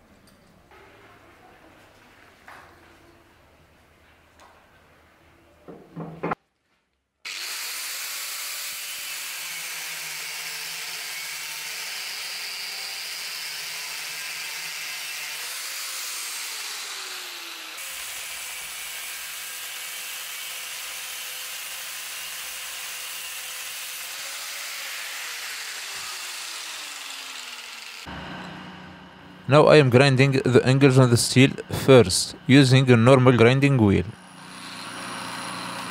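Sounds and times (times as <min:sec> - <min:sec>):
bench grinder running: 0:07.3 - 0:29.5, 0:34.1 - 0:35.9.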